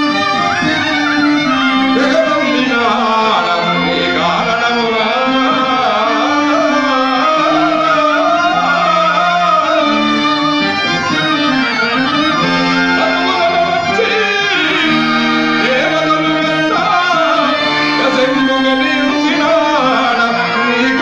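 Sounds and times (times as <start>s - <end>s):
person singing wavering melody: 0.0s - 10.4s, 11.2s - 21.0s
held instrumental notes: 0.0s - 21.0s.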